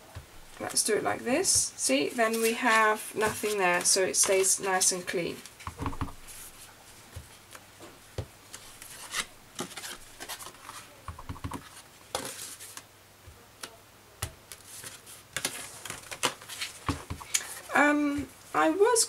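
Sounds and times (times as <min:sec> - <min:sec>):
paper rustling and sliding: 0:08.5 - 0:10.9, 0:11.6 - 0:12.8, 0:14.5 - 0:17.7.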